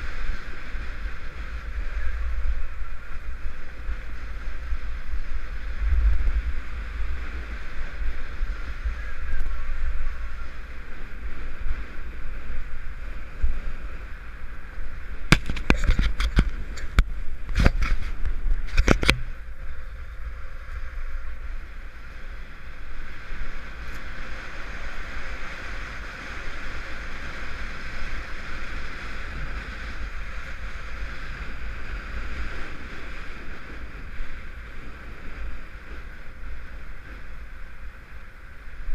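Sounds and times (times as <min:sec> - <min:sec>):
wind rumbling on microphone: 0:00.0 - 0:38.9
sharp clicks and knocks: 0:15.3 - 0:19.3.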